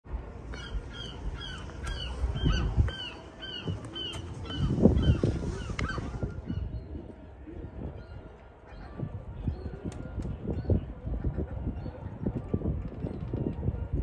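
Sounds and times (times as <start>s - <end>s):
low rumble: 0.1s - 7.2s.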